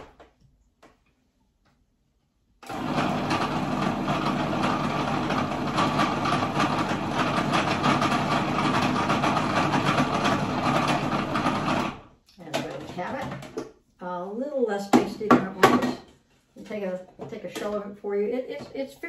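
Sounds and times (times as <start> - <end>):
food processor motor running: 2.6 - 12.1.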